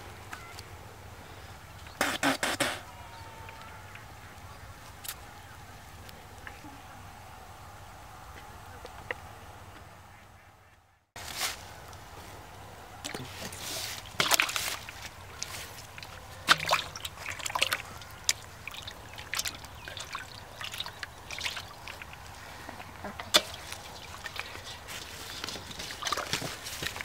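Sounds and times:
water splashing in a fish basin: 13.0s - 27.0s.

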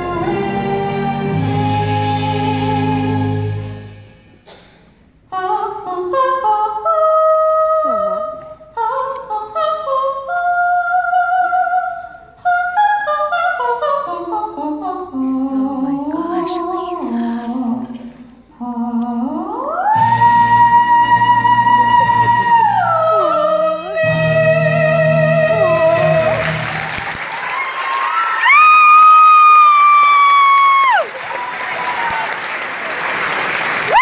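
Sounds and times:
woman singing: 0.0s - 3.9s, 5.3s - 26.6s.

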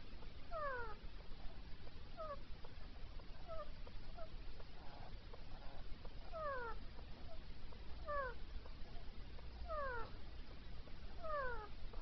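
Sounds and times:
faint bird chirps: 0.0s - 1.0s, 2.1s - 2.5s, 3.3s - 10.3s, 11.0s - 12.0s.

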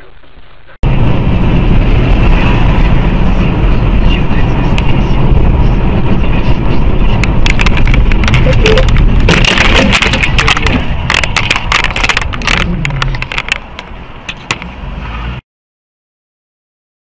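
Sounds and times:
vehicle rumble: 0.0s - 15.4s
crash cracks and crunches: 9.0s - 13.7s.

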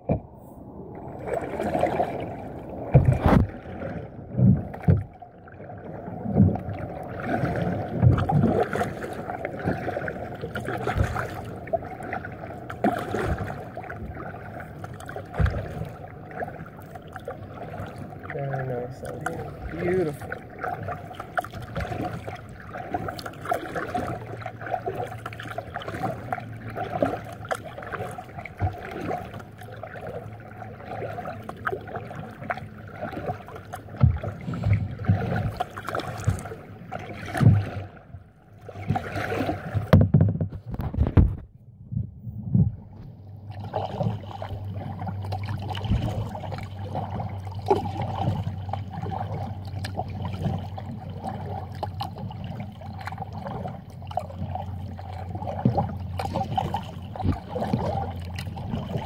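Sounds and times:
paddle dipping into water: 0.0s - 59.0s
water splashing and dripping: 6.2s - 40.2s, 43.5s - 59.0s
low bumps: 39.8s - 46.4s.

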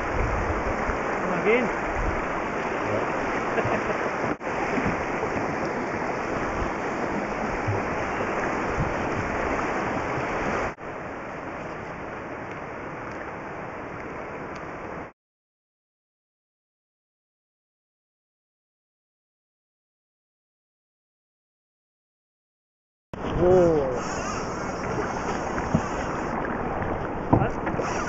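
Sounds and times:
river water rushing: 0.0s - 15.1s, 23.2s - 28.0s
wind rumbling on microphone: 0.0s - 15.1s, 23.2s - 28.0s.

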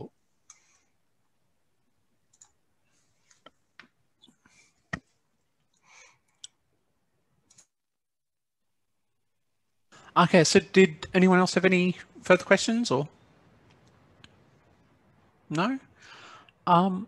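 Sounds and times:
computer mouse clicks: 2.3s - 2.6s, 7.4s - 7.7s.

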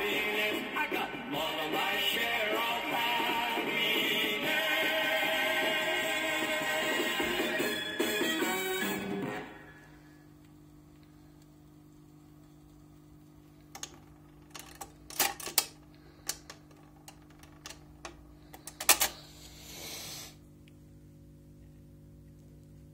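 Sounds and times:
record player hum: 0.0s - 22.9s
record changer mechanical clicks: 13.6s - 19.2s.

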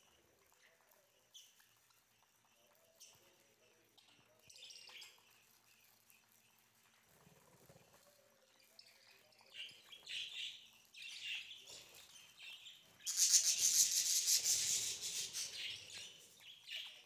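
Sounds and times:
budgerigars chirping: 12.5s - 17.0s.

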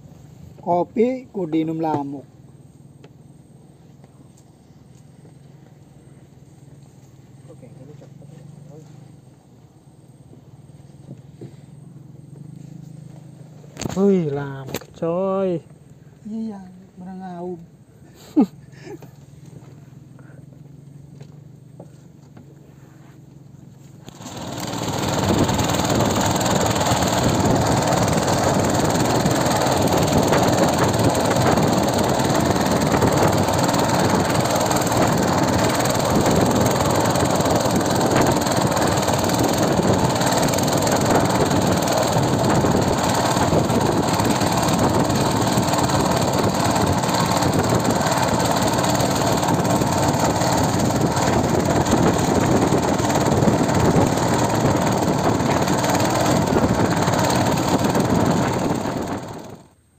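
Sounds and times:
boat engine running: 24.0s - 59.8s.

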